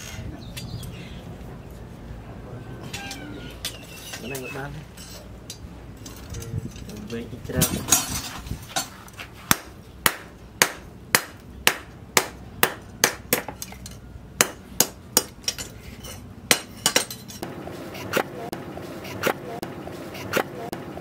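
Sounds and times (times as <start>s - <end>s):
hammer striking metal anvil: 9.5s - 17.4s.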